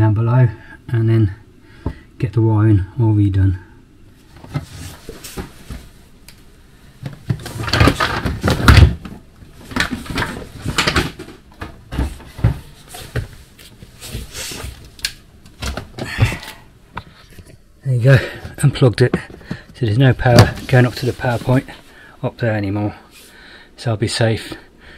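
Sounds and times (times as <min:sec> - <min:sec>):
plastic tubs scraping on wooden shelf: 0:07.2 - 0:13.3.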